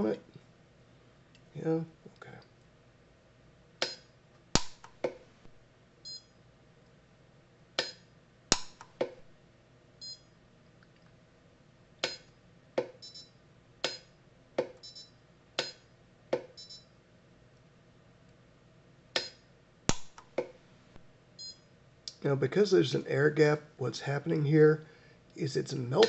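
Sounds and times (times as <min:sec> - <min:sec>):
micro welder snapping pulses: 0:03.8 - 0:05.2, 0:07.8 - 0:09.2, 0:12.0 - 0:12.3, 0:19.2 - 0:20.6
short high welder beeps: 0:06.0 - 0:06.3, 0:10.0 - 0:10.3, 0:13.0 - 0:13.4, 0:14.8 - 0:15.1, 0:16.6 - 0:16.9, 0:21.4 - 0:21.6.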